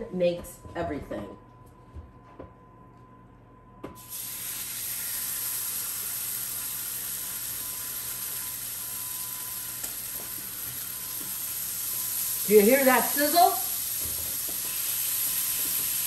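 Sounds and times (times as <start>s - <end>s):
bacon sizzling in skillet: 4.0s - 16.0s.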